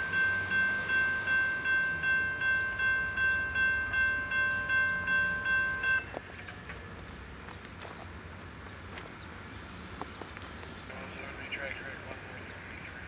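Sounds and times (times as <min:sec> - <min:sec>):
railroad crossing bell ringing: 0:00.0 - 0:06.9.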